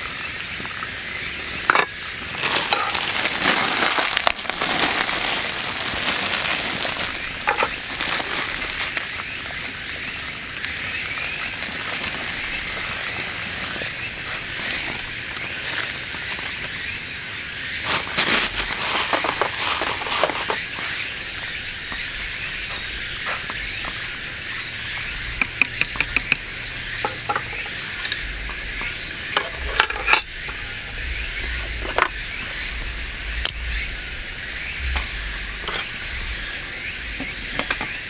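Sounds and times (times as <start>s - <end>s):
water boiling: 0.3s - 16.8s.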